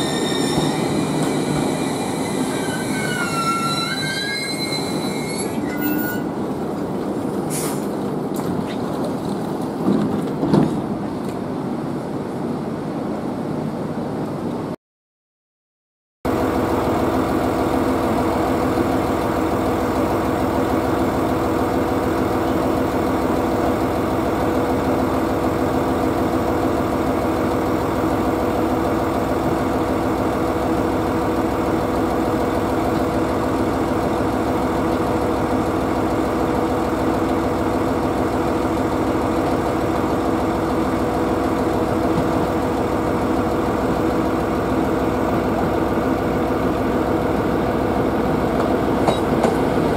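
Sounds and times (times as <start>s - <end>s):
diesel engine idling: 16.3s - 49.9s.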